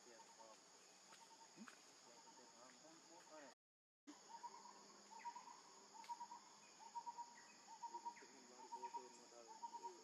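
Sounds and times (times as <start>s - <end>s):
high insect drone: 4.1s - 10.0s.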